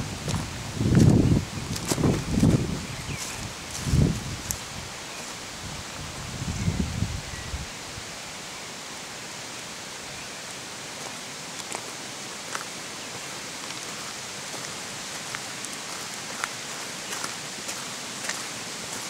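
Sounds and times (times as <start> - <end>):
stream rushing: 0.0 - 19.0
footsteps on leaf litter: 0.2 - 5.4, 11.0 - 19.0.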